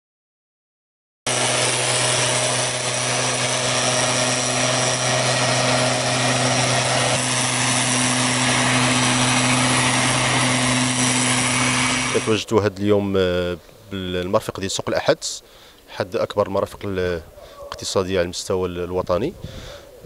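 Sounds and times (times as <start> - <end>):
mist blower engine running: 1.3 - 12.5.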